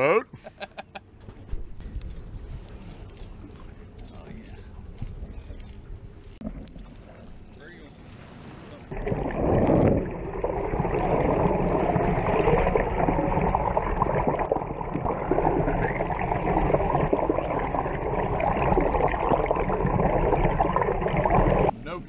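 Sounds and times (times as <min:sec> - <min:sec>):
steady low rumble: 0:00.4 - 0:22.0
underwater water rushing and gurgling: 0:06.4 - 0:21.7.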